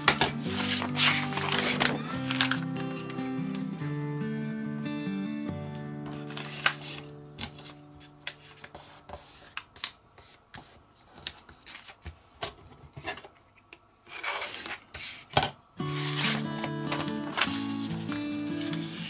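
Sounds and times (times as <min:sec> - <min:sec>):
paper rustling and creasing: 0:00.0 - 0:04.6, 0:05.8 - 0:13.4, 0:14.0 - 0:19.0
background music: 0:00.0 - 0:08.1, 0:15.8 - 0:19.0
paper sliding rub: 0:00.5 - 0:02.6, 0:06.0 - 0:07.7, 0:08.4 - 0:11.3, 0:14.1 - 0:19.0.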